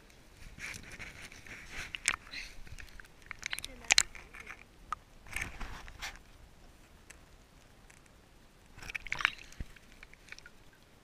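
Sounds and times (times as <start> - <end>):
small water splashes: 1.9 - 4.6, 8.7 - 11.0.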